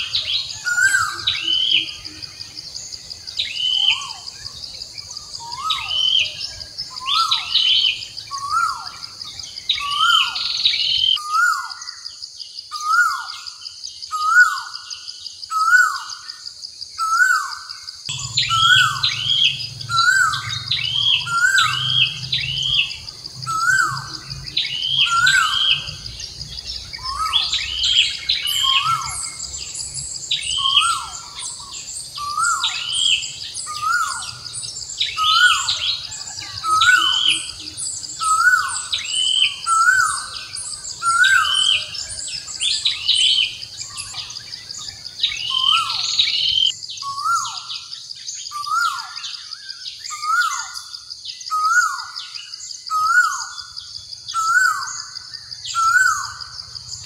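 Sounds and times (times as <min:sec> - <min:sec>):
high bird chirps: 0:00.0 - 0:12.0, 0:17.0 - 0:57.0
bird calls sliding downward: 0:18.1 - 0:24.1
steady high-pitched drone: 0:18.1 - 0:28.0.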